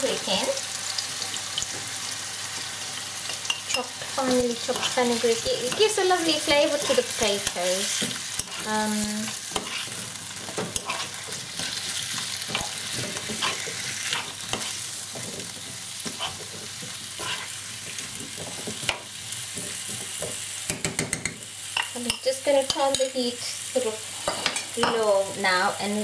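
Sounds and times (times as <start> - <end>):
food sizzling in hot oil: 0.0 - 26.0
spoon scraping and tapping pan: 12.5 - 23.1.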